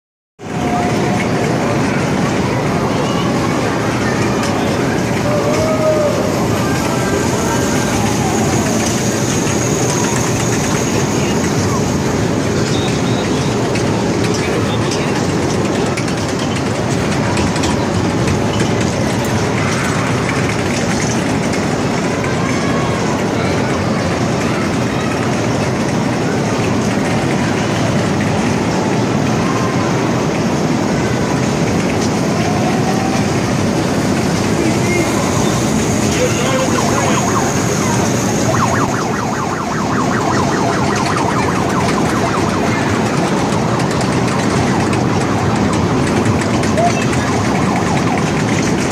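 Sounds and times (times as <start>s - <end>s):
ride train wheels rumbling on rails: 0.4s - 48.9s
warbling siren-like sound: 3.2s - 13.4s, 34.4s - 48.9s.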